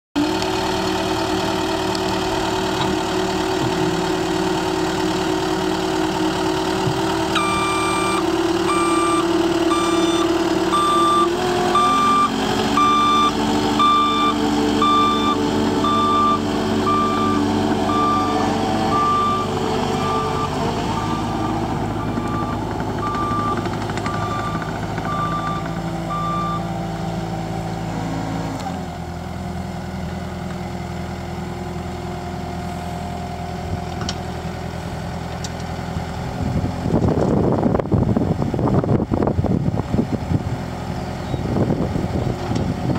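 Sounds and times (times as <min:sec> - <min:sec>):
diesel engine running: 0:00.2 - 0:42.9
reversing alarm beeping: 0:07.4 - 0:26.7.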